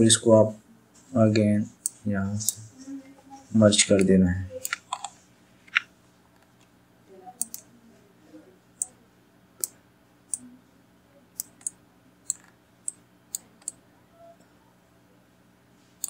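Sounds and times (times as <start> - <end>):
faint steady hum: 0.0 - 16.0
mouse and keyboard clicks: 4.6 - 5.1, 7.4 - 7.6, 11.4 - 13.8.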